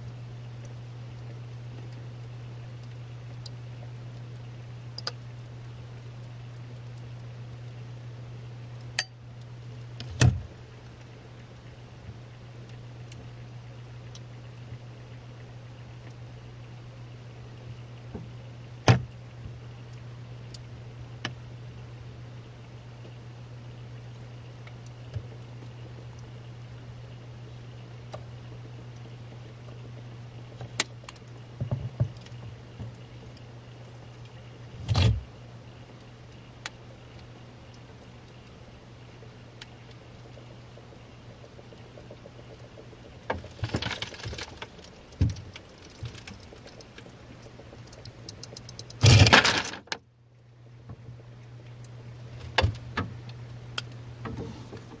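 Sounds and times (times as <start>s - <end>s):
freezer ice maker hum: 0.0s - 55.0s
ice maker clicks and cracks: 43.3s - 50.0s
ice clattering into bin: 43.4s - 44.7s, 49.0s - 49.9s.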